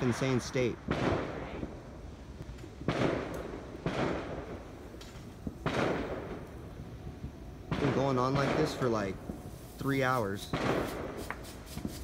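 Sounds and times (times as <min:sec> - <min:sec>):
rolling echo: 0:00.0 - 0:09.5
distant fireworks bangs: 0:00.0 - 0:12.0.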